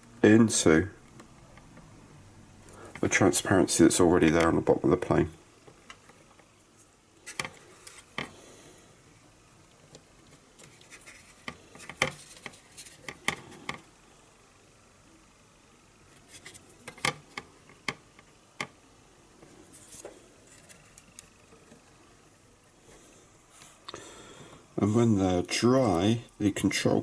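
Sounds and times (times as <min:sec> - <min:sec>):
plastic part clicking and scratching: 0:10.2 - 0:13.8.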